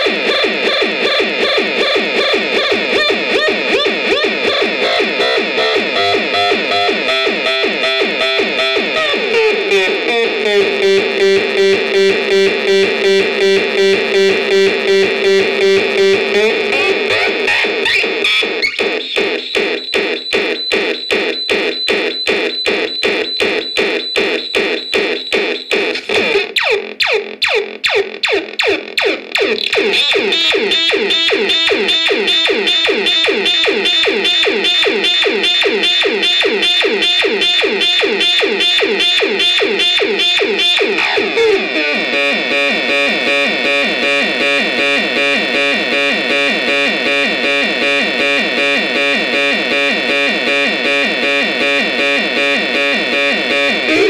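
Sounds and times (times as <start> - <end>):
electronic synthesizer pulse pattern: 0.0 - 54.0
synth notes sweeping down: 10.3 - 16.7
high synth warble: 10.3 - 18.4.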